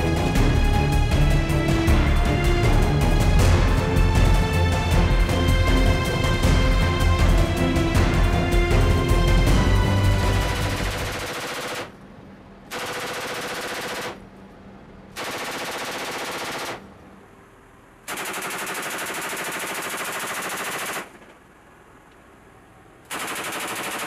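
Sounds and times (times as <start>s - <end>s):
aircraft engine drone: 0.0s - 24.0s
machine gun automatic fire: 10.9s - 12.0s, 12.7s - 14.2s, 15.1s - 16.9s, 18.1s - 21.4s, 23.1s - 24.0s.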